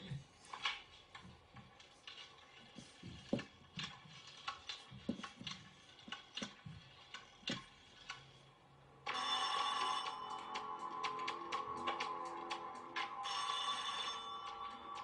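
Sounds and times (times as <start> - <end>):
phone ringtone: 9.0 - 15.0.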